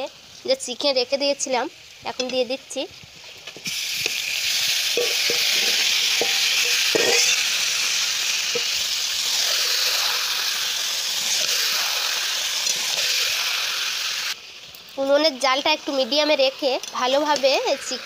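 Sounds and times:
chicken sizzling in oil: 0.0s - 18.0s
metal spatula clinking pan: 5.0s - 7.4s.

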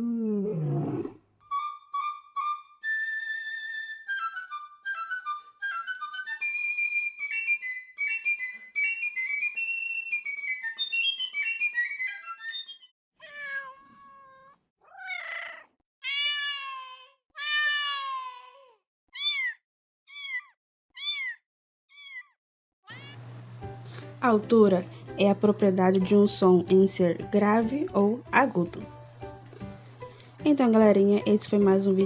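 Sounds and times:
piccolo melody: 1.4s - 12.8s
cat meowing: 13.2s - 23.2s.

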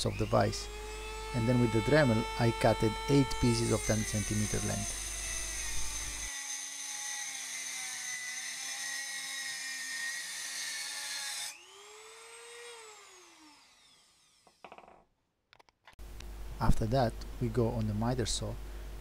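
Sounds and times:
rotary tool cutting metal rod: 0.0s - 6.5s.

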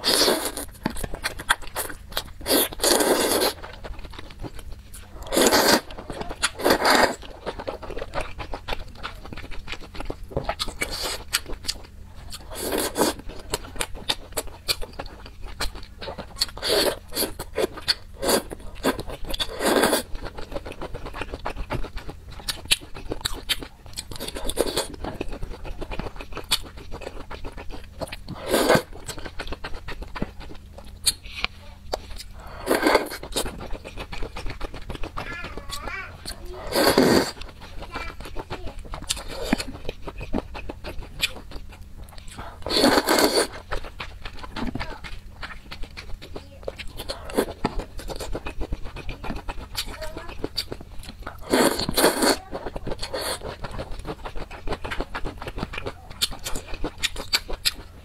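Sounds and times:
slurping: 0.0s - 3.9s, 5.0s - 8.8s, 16.2s - 22.1s, 31.1s - 40.3s, 42.2s - 50.6s, 51.3s - 57.8s
wet chewing: 0.0s - 58.0s.

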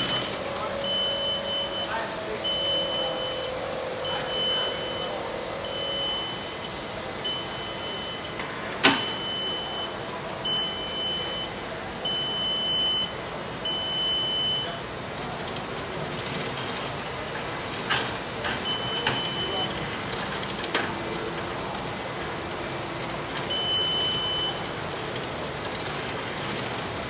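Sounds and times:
high warning beeps: 0.0s - 14.9s, 18.5s - 19.9s, 23.4s - 25.0s.

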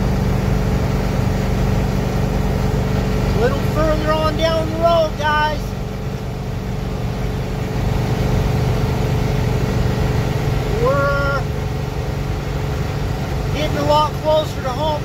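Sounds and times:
diesel engine drone: 0.0s - 15.0s
road noise: 0.0s - 15.0s
short voice sounds: 10.7s - 11.5s.

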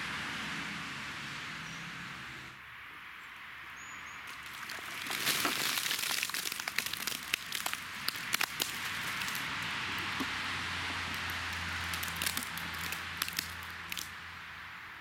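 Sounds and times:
wet mud splattering: 4.3s - 14.1s.

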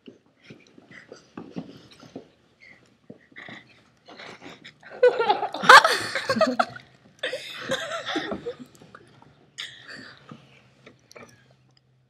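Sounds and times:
girls murmuring and giggling: 3.2s - 8.9s.

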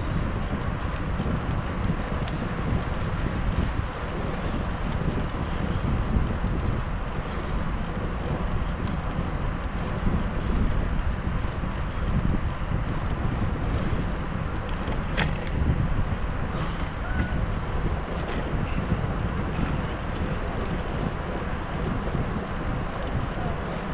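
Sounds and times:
wind rushing over microphone: 0.0s - 23.9s.

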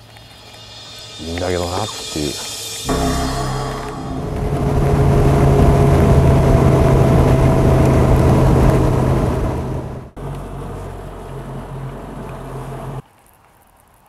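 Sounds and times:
wind and water rushing: 2.8s - 10.0s
outboard motor running: 2.9s - 13.0s.

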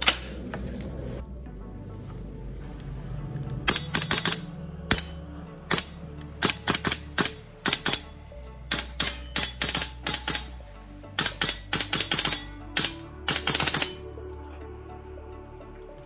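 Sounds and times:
bolt cycling: 3.7s - 8.1s, 8.7s - 10.6s, 11.2s - 14.0s
airsoft rifle shots: 8.7s - 10.5s, 11.2s - 14.0s.

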